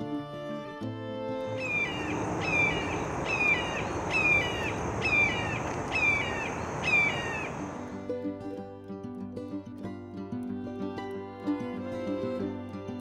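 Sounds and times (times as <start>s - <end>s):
outdoor background noise: 1.1s - 8.8s
hawk screaming: 1.6s - 7.8s.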